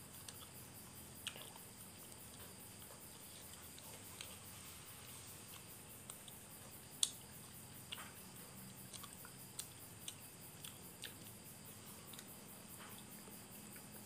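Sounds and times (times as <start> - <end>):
faint high insect chirring: 0.0 - 14.0
mouth clicks and lip smacks chewing: 8.9 - 11.4.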